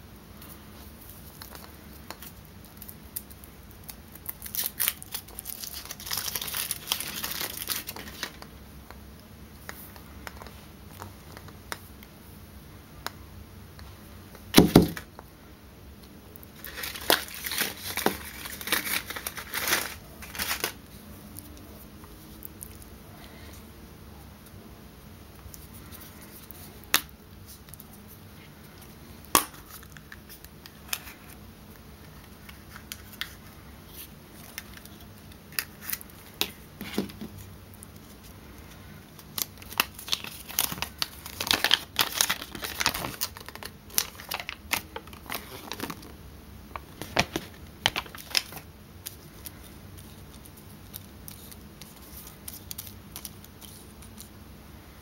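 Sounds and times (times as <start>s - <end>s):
paper and foil crinkling: 1.0s - 8.5s, 16.6s - 23.5s, 32.0s - 46.1s, 46.8s - 54.3s.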